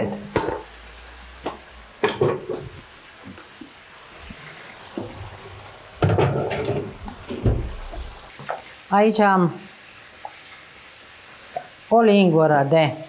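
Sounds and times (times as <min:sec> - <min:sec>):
tap water running into sink: 0:01.4 - 0:08.7
dishes clattering: 0:02.0 - 0:02.8, 0:06.0 - 0:08.1.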